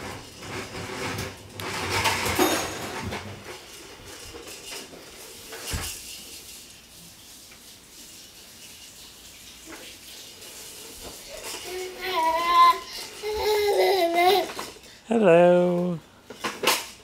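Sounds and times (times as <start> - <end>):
plastic toy walker rattling: 0.0 - 6.3, 11.0 - 14.9, 16.3 - 17.0.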